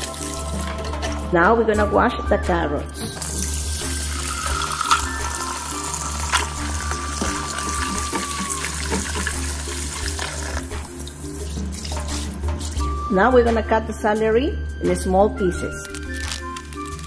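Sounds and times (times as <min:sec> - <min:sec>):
faucet water splashing in sink: 0:00.0 - 0:00.9, 0:03.1 - 0:12.8
background music: 0:00.0 - 0:17.0.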